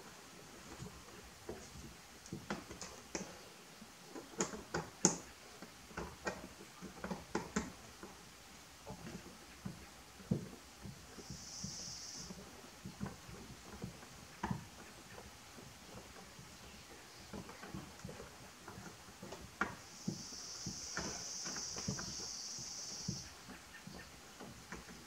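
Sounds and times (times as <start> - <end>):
light taps of hand tools: 8.8 - 22.2.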